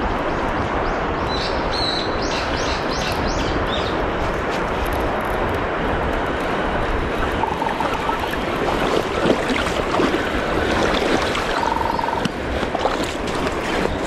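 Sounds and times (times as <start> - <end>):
wind: 0.0 - 14.0
river water rushing: 5.5 - 14.0.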